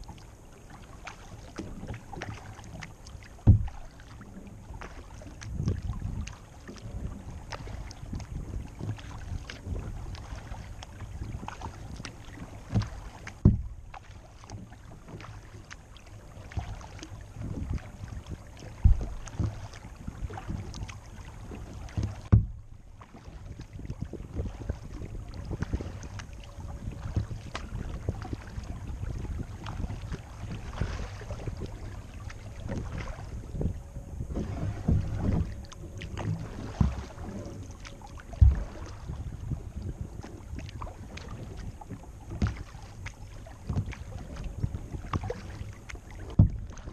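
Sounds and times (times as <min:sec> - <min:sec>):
kayak paddle strokes: 0:00.0 - 0:46.9
low rumble: 0:00.2 - 0:46.9
sharp knocks: 0:22.3 - 0:22.6.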